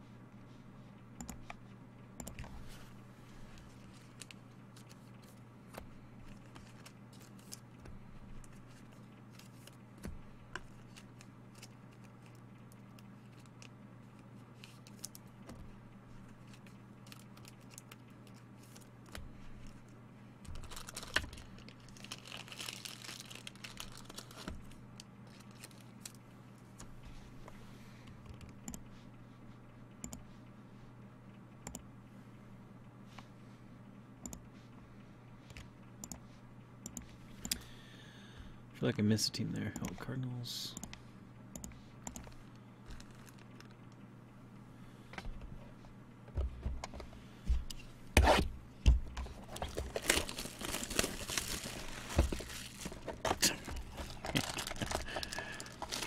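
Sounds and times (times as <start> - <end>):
steady low hum: 0.0 - 56.0
rustling and crinkling: 2.5 - 12.4, 13.0 - 27.6, 42.2 - 43.9, 49.2 - 56.0.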